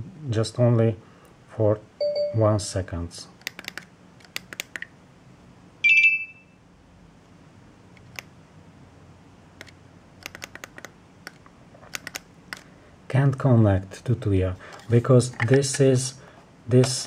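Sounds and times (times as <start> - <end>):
high electronic beep: 5.8 - 6.6.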